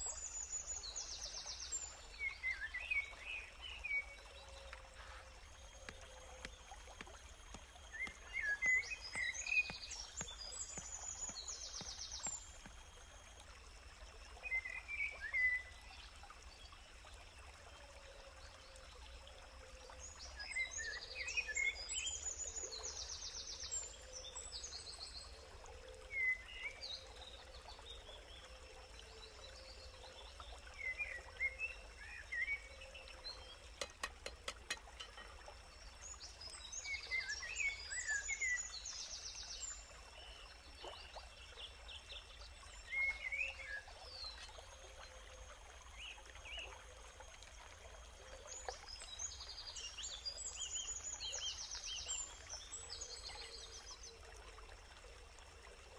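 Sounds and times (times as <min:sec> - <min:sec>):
birds singing and calling: 0:00.0 - 0:12.6.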